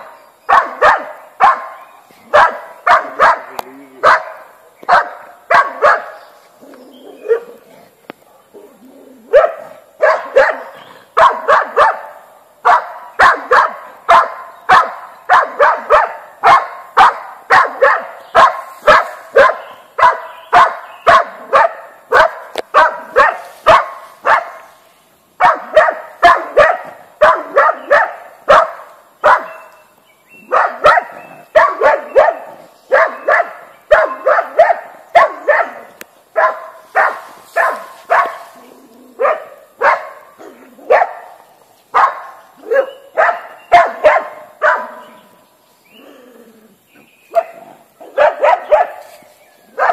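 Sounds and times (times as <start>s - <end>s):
dog barking: 0.5s - 6.2s, 7.2s - 7.6s, 9.3s - 24.7s, 25.4s - 29.6s, 30.4s - 38.5s, 39.2s - 45.2s, 47.3s - 49.9s.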